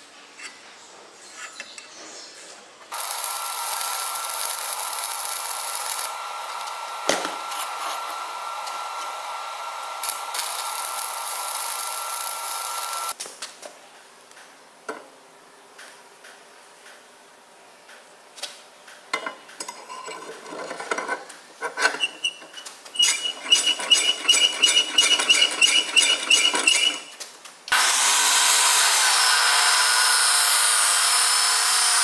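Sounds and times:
thin steady whine: 2.9 - 13.2
welding arc hissing: 2.9 - 13.2, 27.7 - 32.0.

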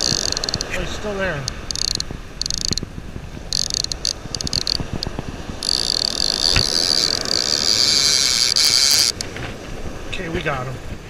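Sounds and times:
fishing reel clicker buzzing: 0.0 - 0.8, 1.4 - 2.9, 3.5 - 9.3.

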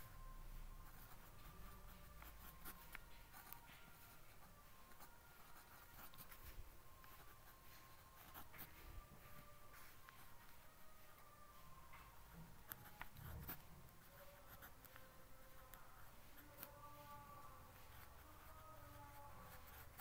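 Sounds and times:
pen scratching on paper: 0.8 - 8.8, 12.4 - 17.2, 17.8 - 20.0.

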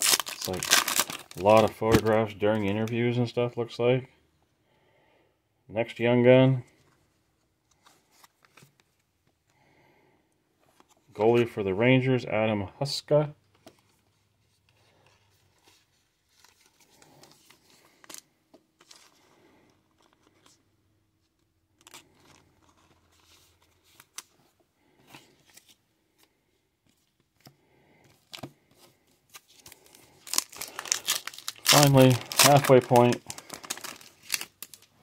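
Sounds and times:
trading cards clicking and rustling: 29.3 - 34.9.

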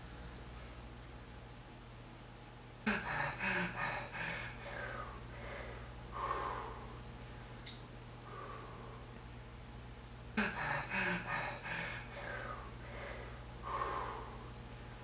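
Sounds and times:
faint low hum: 0.0 - 15.0
click: 7.6 - 7.8.

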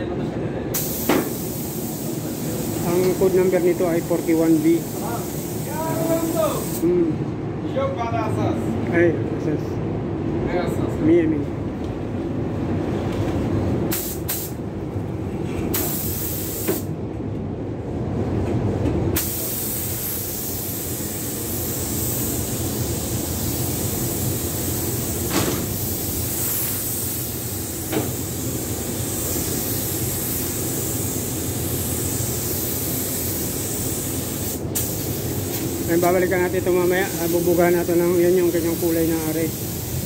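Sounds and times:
ventilation rumble: 0.0 - 40.0
paint spray gun hissing: 0.8 - 3.2, 4.1 - 6.8, 13.9 - 14.6, 15.8 - 16.9, 19.2 - 40.0.

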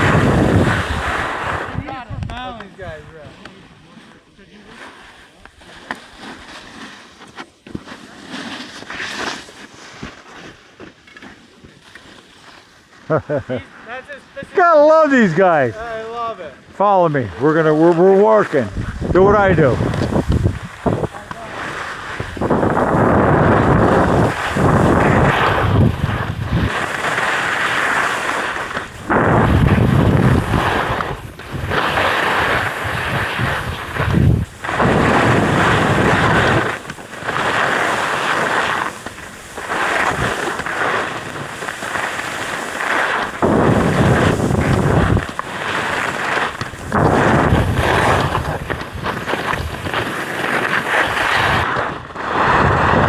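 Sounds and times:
wind buffeting microphone: 0.0 - 3.0, 18.6 - 26.9, 28.9 - 36.9, 43.3 - 45.4, 46.6 - 50.0
skis scraping packed snow: 0.0 - 53.0.

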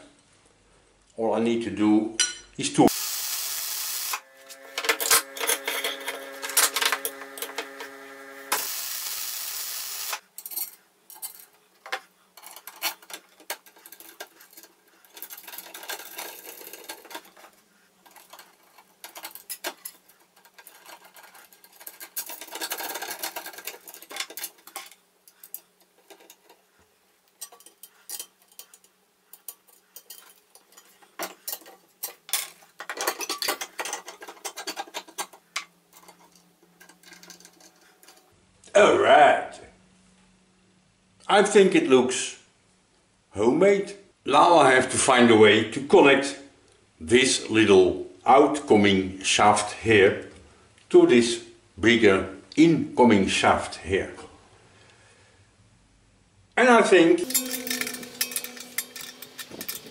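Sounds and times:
welding arc crackling: 2.9 - 5.4, 6.2 - 10.2
steel parts clinking and scraping: 4.0 - 38.4, 57.2 - 59.9.

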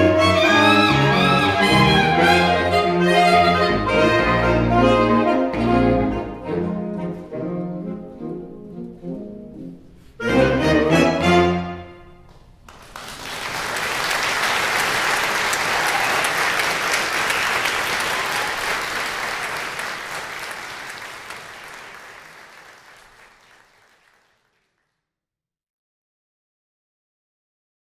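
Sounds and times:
audience clapping: 12.2 - 25.0.

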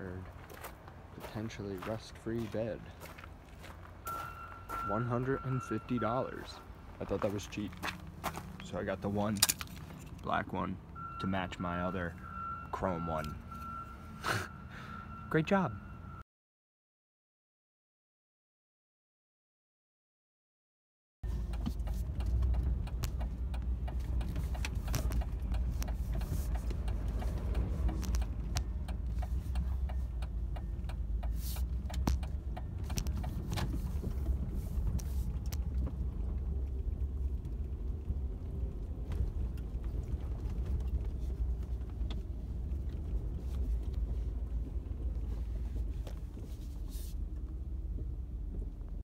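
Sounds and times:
engine and road rumble: 0.0 - 16.2, 21.2 - 49.0
clicks and rattles in cab: 21.3 - 38.0.

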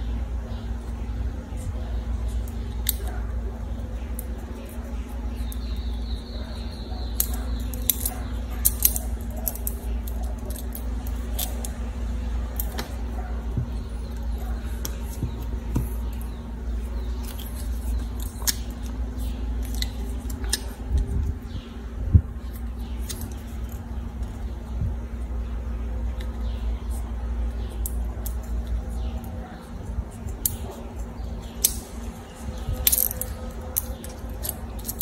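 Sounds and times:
steady low hum: 0.0 - 35.0
scissors snipping plastic straws: 7.2 - 11.8, 30.2 - 30.7, 31.4 - 32.0, 32.6 - 35.0.

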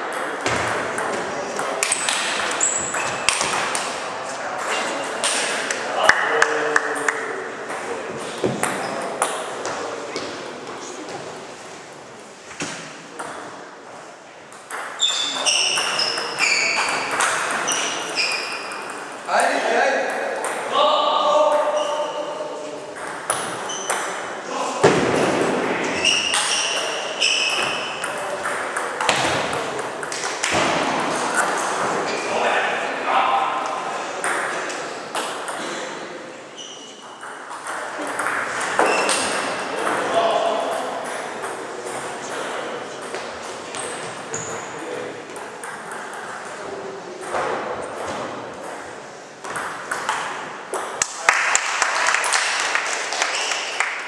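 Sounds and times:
murmur of voices: 0.0 - 54.0
sharp knocks from other tables: 0.2 - 3.9
short high squeaks: 2.6 - 3.4, 15.0 - 18.8, 26.0 - 28.0, 36.6 - 37.2, 38.9 - 39.3.

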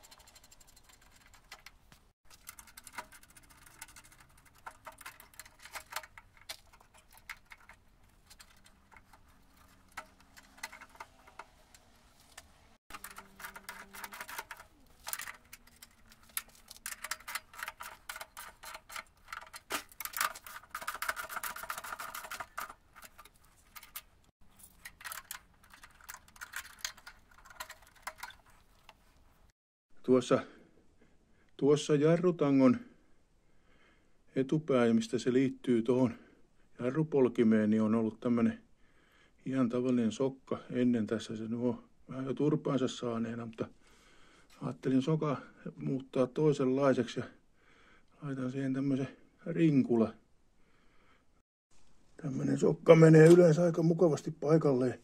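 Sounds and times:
metallic clicks of tools: 0.0 - 29.0.

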